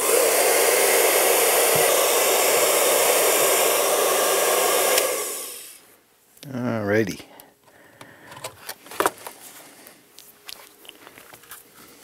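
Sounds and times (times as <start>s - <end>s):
fan winding down: 0.0s - 5.8s
hot-air blower rushing: 0.0s - 5.8s.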